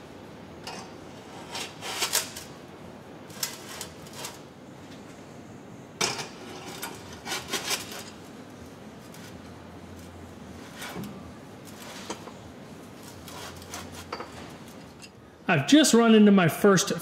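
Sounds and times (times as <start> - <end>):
faint steady hum: 0.0 - 17.0
metal tools clinking and scraping: 13.3 - 15.2.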